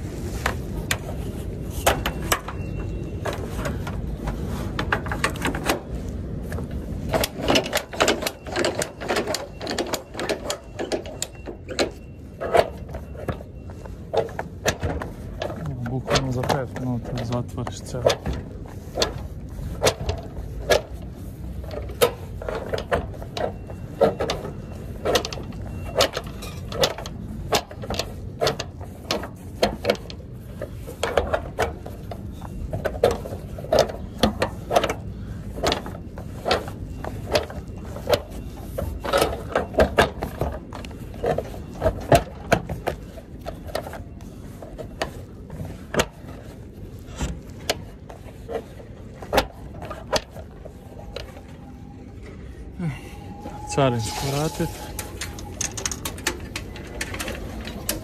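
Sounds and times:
cable clicking through metal eyelets: 53.4s - 58.0s.

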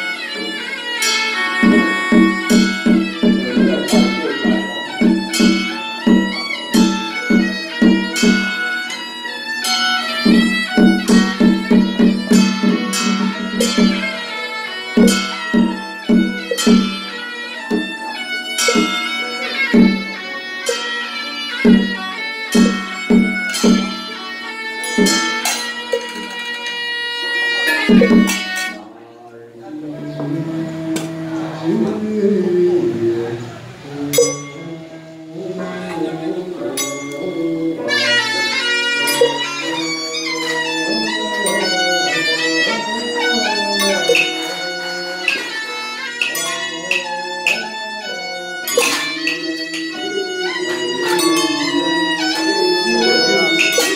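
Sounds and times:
ritual percussion strikes: 0.0s - 28.9s, 33.9s - 53.9s
sustained droning melody: 0.0s - 28.9s, 29.6s - 53.9s
bowl bell ringing: 10.3s - 14.4s, 15.0s - 17.2s, 34.2s - 34.8s, 36.8s - 37.9s.

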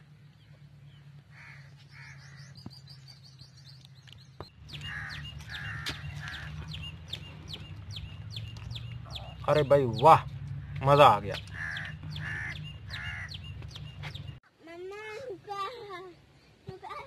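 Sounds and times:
harsh bird calls: 0.3s - 14.4s.

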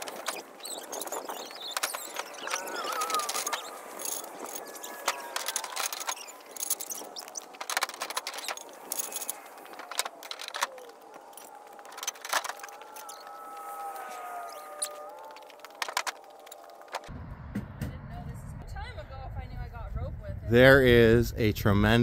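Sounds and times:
faint wavering tones: 0.0s - 17.1s.

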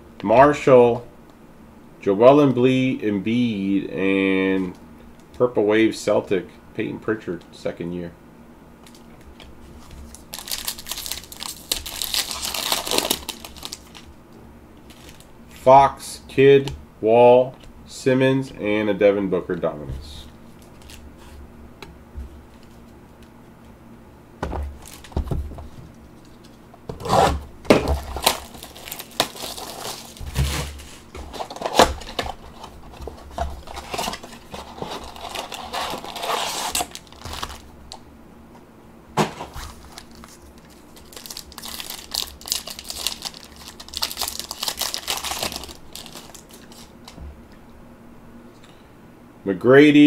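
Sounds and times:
packaging crinkling: 8.8s - 14.2s, 14.8s - 15.6s, 20.5s - 21.4s, 24.6s - 38.0s, 39.3s - 47.2s
cardboard box tearing: 26.9s - 37.6s.

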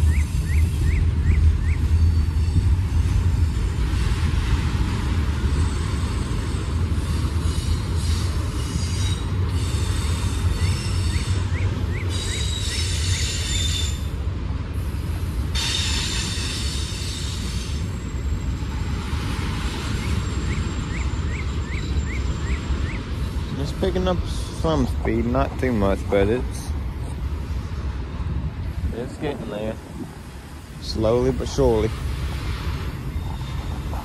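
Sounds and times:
high-pitched wheel squeal: 0.0s - 3.7s, 5.5s - 14.1s, 33.0s - 34.0s
train wheels rumbling on rail: 0.0s - 34.0s.

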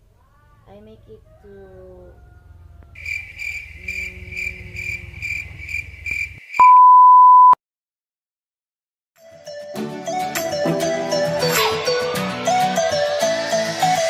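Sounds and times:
low hum: 0.7s - 6.4s
loud steady beep: 6.6s - 7.6s.

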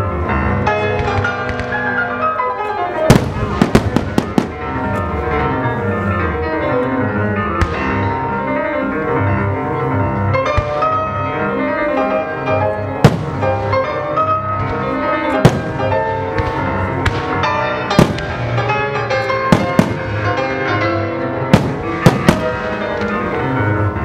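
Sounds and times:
classical music: 0.0s - 24.0s
fireworks bursting: 3.0s - 5.0s, 13.0s - 14.3s, 15.3s - 18.8s, 19.4s - 20.5s, 21.5s - 23.2s.

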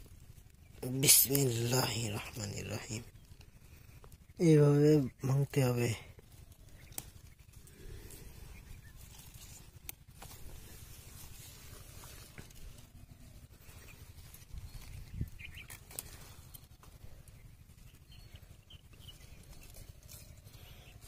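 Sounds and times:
leaves rustling: 0.0s - 21.0s
low steady rumble: 0.0s - 21.0s
stems snapping: 6.2s - 8.2s, 9.0s - 12.8s, 13.9s - 17.4s.

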